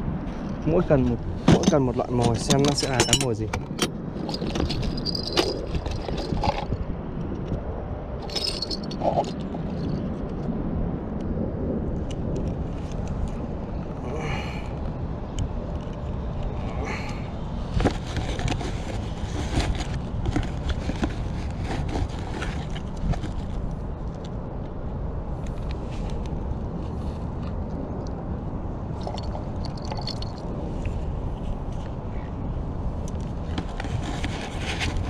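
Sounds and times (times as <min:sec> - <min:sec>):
tackle clicks and scrapes: 0:00.3 - 0:07.5, 0:15.7 - 0:24.7, 0:25.4 - 0:28.2, 0:29.0 - 0:32.3, 0:33.0 - 0:35.0.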